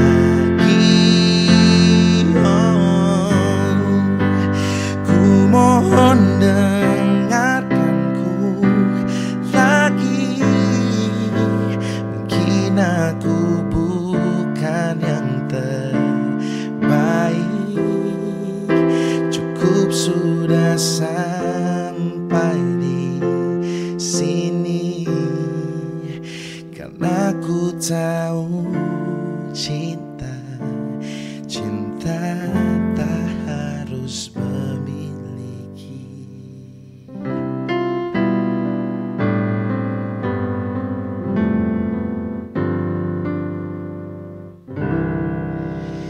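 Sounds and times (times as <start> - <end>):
man singing: 0.0 - 37.3
keyboard piano chords: 0.0 - 46.0.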